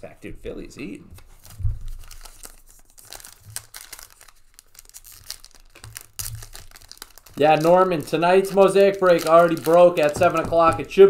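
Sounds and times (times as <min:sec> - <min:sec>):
foil wrapper crinkling: 0:01.2 - 0:10.9
dull handling thumps: 0:09.6 - 0:11.0.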